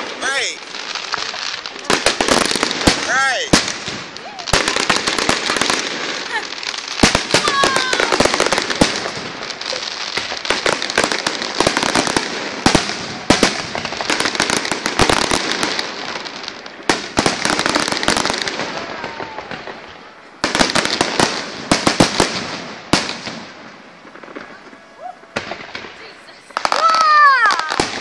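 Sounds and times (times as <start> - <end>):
firework crackling: 0.0 - 28.0.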